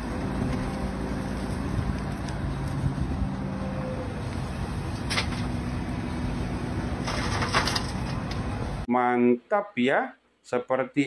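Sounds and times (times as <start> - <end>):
diesel engine running under load: 0.0 - 8.8.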